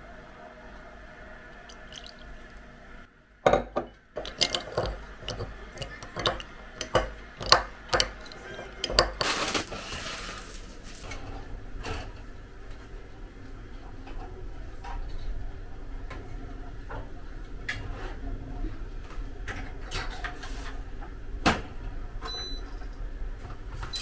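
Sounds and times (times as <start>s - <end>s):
soft pour into mug: 1.5s - 2.4s
spoon clinking in ceramic mug: 1.7s - 2.3s, 3.5s - 9.2s.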